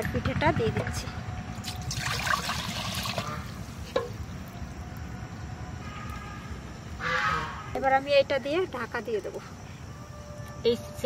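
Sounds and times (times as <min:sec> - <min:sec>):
water heating rumble and hiss: 0:00.9 - 0:09.4.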